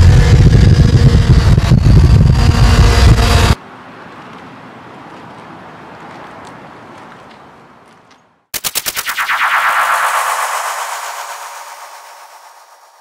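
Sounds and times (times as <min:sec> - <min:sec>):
motorbike engine running: 0:00.0 - 0:03.6
stuttering pulses: 0:00.0 - 0:03.6, 0:08.6 - 0:13.0.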